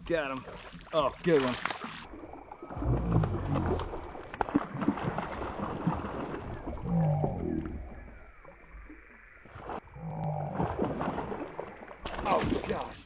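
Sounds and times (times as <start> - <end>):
fish splashing at surface: 0.5 - 6.8, 10.6 - 13.0.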